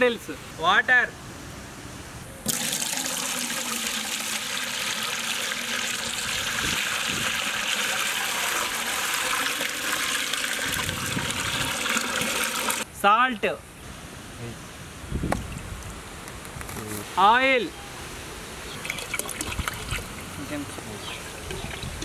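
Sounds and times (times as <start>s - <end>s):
water pouring into a pot: 2.5s - 12.8s.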